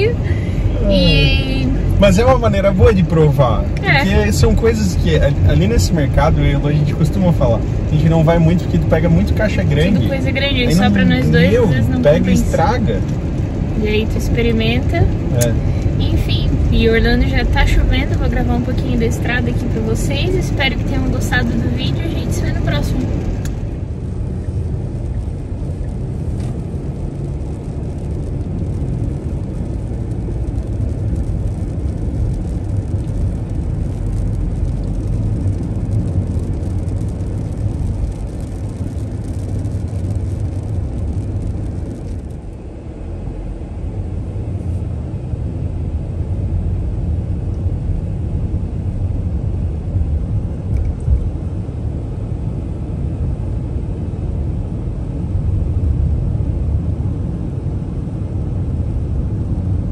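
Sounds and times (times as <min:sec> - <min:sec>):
car engine and tyres rumbling: 0:00.0 - 0:59.9.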